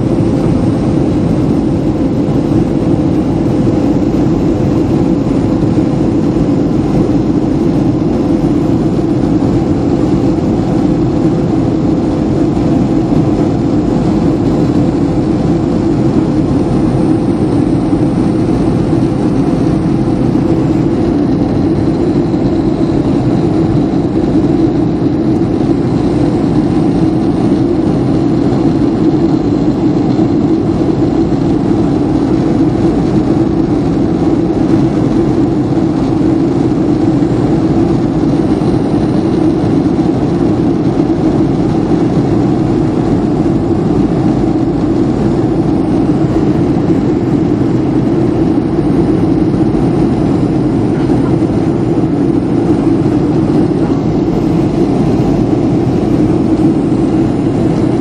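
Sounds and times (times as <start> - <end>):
airplane cabin engine hum: 0.0 - 58.0.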